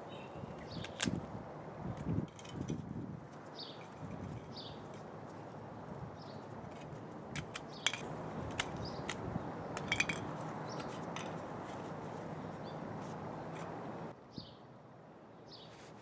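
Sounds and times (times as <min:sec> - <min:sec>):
birds chirping: 0:00.0 - 0:01.0, 0:03.4 - 0:14.6.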